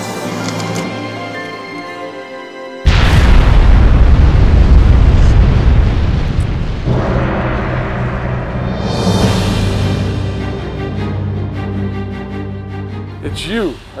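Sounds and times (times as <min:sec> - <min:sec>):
music: 0:00.0 - 0:03.9, 0:06.9 - 0:14.0
loud explosion with deep rumble: 0:02.9 - 0:10.7.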